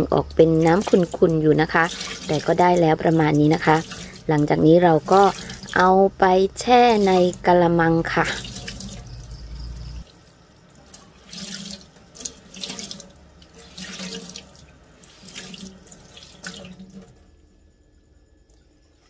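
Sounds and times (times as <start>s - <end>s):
tap water running: 0.0s - 17.4s
wet fabric squeezed and splashing: 1.8s - 4.4s, 5.0s - 5.9s.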